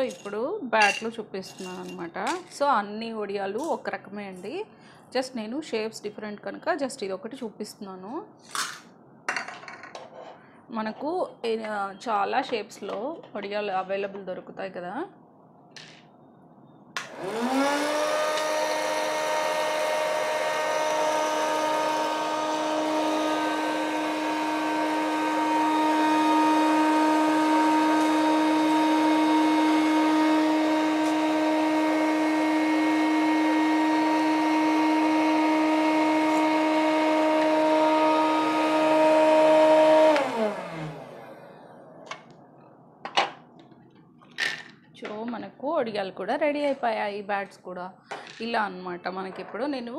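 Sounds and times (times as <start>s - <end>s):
popcorn maker fan humming: 17.0s - 42.3s.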